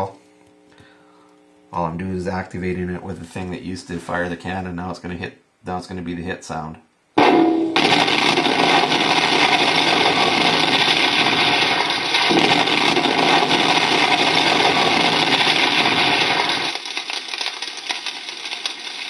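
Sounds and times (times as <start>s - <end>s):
fire rushing over loudspeaker: 7.8s - 19.0s.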